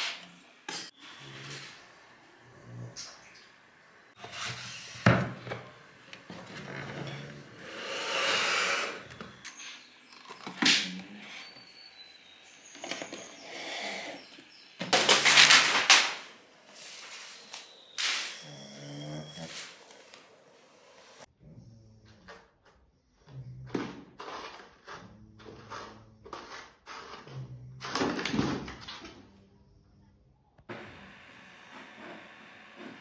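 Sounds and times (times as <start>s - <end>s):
rustling and scraping: 4.2s - 7.7s, 14.2s - 18.7s.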